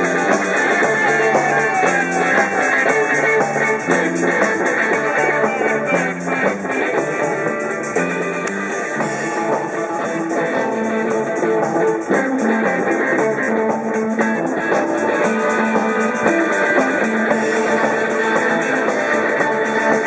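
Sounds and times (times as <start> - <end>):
drum kit: 0.0 - 20.0
electric guitar through amplifier: 0.0 - 20.0.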